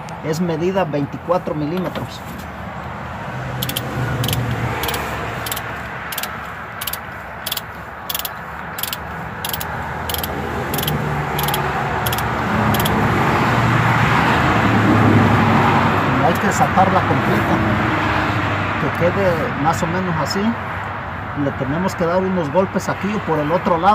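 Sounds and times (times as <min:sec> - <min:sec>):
low traffic hum: 0:00.0 - 0:23.9
ratchet clicking: 0:03.6 - 0:13.0.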